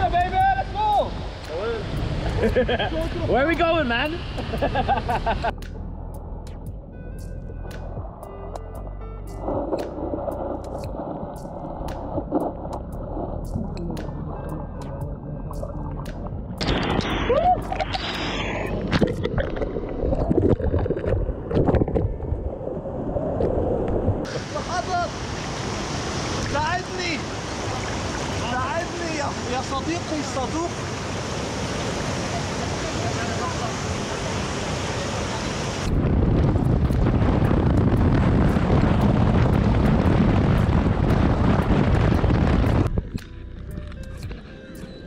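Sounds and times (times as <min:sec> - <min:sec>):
rushing water: 0:00.0 - 0:05.9, 0:07.5 - 0:44.8
wind buffeting microphone: 0:35.7 - 0:44.5.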